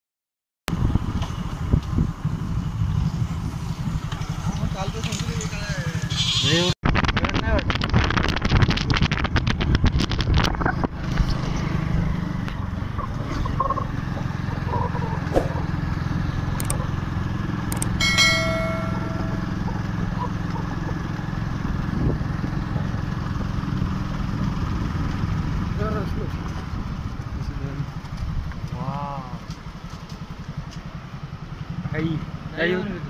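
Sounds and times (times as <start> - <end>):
wind noise on microphone: 0.7 - 4.9, 6.1 - 13.6, 21.6 - 28.6
motorcycle engine running: 0.7 - 33.0
brief high tone: 18.0 - 20.0.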